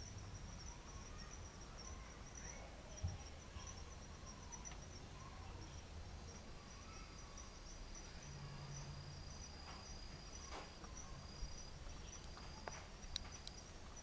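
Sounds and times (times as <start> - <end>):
insect chirping: 0.0 - 14.0
light clicks: 12.0 - 13.7.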